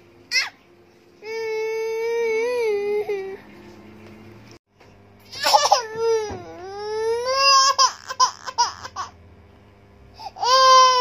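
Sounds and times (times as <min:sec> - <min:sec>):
infant crying: 0:10.2 - 0:11.0.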